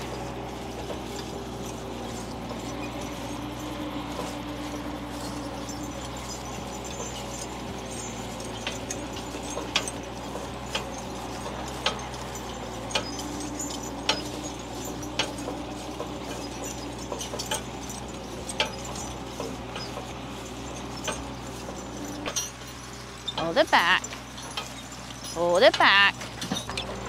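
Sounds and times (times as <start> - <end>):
metallic clinks and knocks: 0.0 - 27.0
vehicle engine humming: 0.0 - 27.0.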